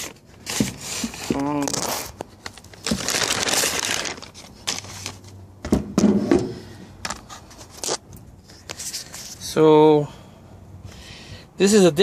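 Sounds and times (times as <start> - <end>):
rustling and scraping handling noise: 0.0 - 5.5, 6.1 - 9.7.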